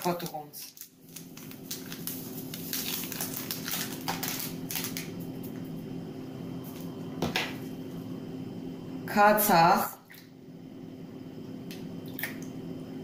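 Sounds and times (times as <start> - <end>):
paper packet crinkling: 0.0 - 5.3
steady low hum: 0.0 - 13.0.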